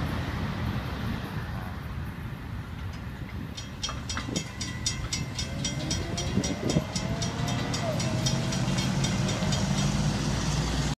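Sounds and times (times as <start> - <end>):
idling cars and trucks rumbling: 0.0 - 10.9
railroad crossing bell ringing: 2.7 - 10.9.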